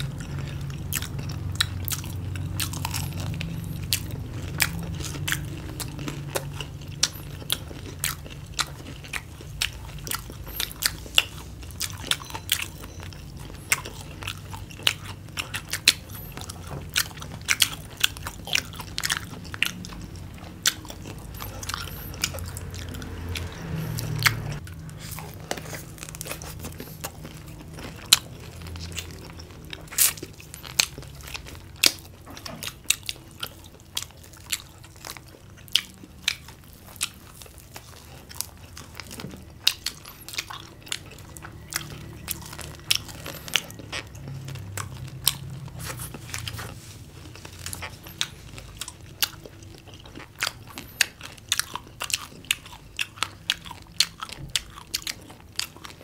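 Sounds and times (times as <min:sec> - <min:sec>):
people chewing crunchy fried food: 0:00.0 - 0:56.0.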